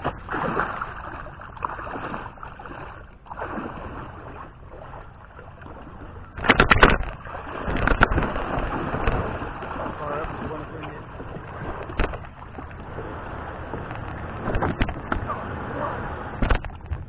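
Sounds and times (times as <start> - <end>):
water lapping against kayak: 0.0 - 17.0
knocks and rattles: 6.4 - 9.3, 13.7 - 15.3, 16.4 - 17.0.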